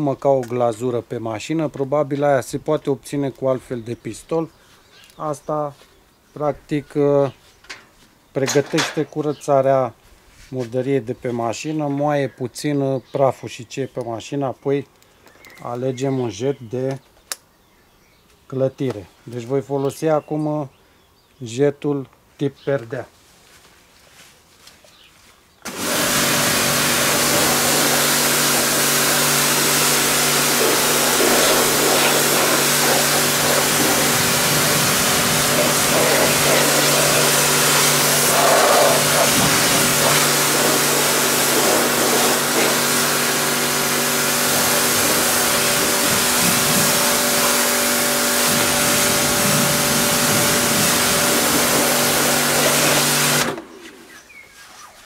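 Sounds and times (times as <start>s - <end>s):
water jet spraying with a hiss: 25.7s - 53.6s
pressure washer motor humming: 25.7s - 53.7s.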